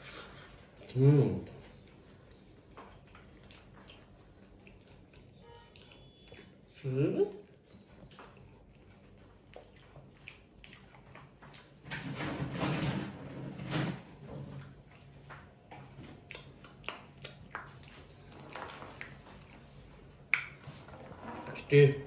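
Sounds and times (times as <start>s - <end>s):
person chewing: 1.7s - 11.8s, 14.5s - 20.7s.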